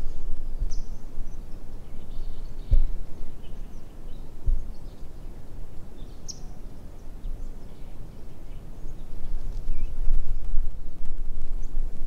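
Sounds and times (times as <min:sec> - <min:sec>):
wind rumble: 0:00.0 - 0:12.0
high bird chirps: 0:06.0 - 0:06.6.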